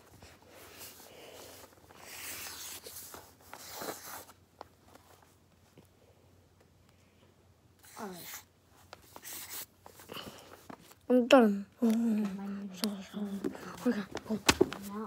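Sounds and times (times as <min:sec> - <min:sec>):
marker scratching on paper: 0:00.8 - 0:04.3, 0:07.8 - 0:09.7.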